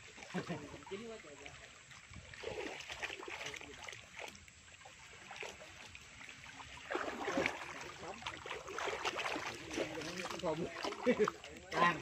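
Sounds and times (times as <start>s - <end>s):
muddy water sloshing and pouring: 0.0s - 12.0s.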